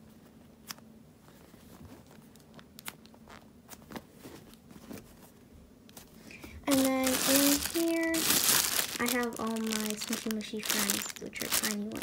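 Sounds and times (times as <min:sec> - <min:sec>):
hand rummaging through foam toys: 0:06.3 - 0:12.0.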